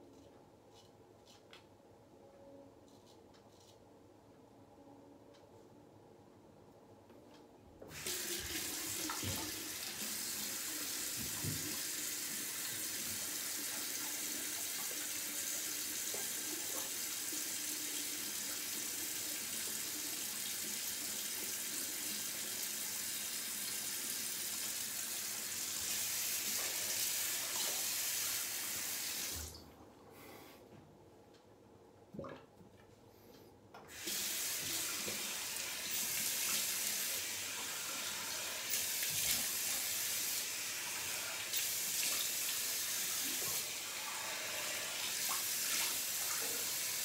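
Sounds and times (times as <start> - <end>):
tap running into sink: 11.0 - 11.9.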